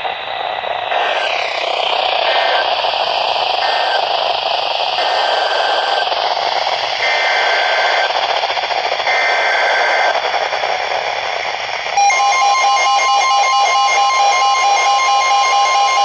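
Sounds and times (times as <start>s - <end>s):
radio static hiss: 0.0s - 12.0s
faint radio tones: 0.8s - 4.3s.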